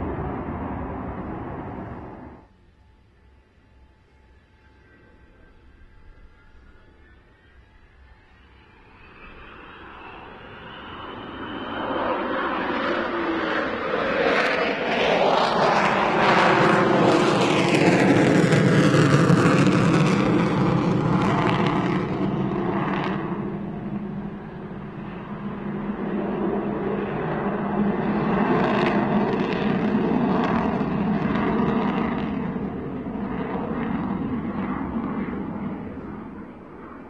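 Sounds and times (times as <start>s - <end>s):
jet aircraft rumble: 0.0s - 2.5s, 4.7s - 37.0s.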